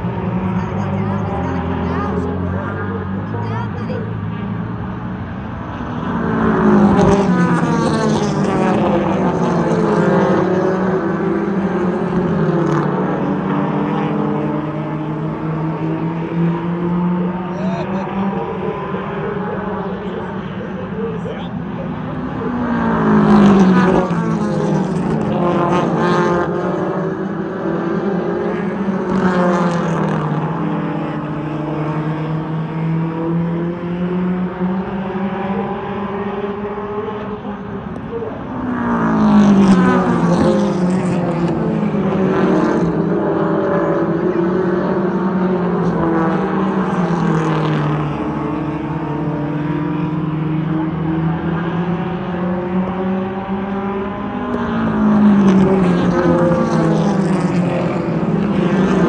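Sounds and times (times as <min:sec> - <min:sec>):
race car engines passing: 0:00.0 - 0:59.0.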